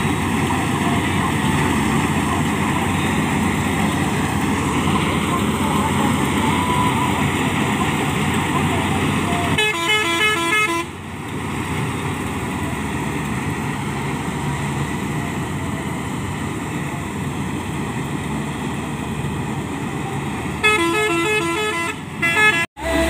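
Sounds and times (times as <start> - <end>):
combine harvester running: 0.0 - 23.0
melodic horn tune: 9.5 - 11.0, 20.6 - 23.0.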